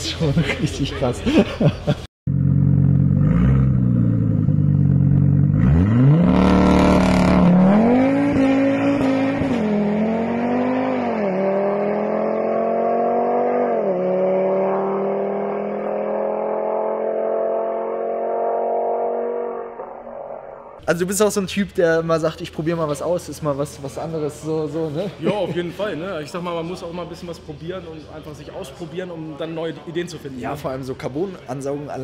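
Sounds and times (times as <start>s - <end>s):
car engine revving: 2.3s - 20.8s.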